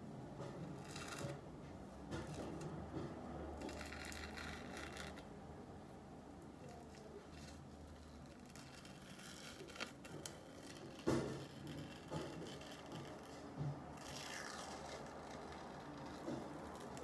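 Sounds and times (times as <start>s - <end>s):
peel-off mask crackling: 6.6s - 17.0s.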